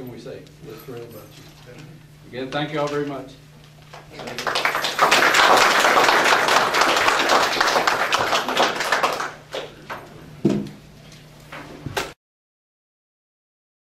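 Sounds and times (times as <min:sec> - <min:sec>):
crowd applauding: 0:04.0 - 0:09.7.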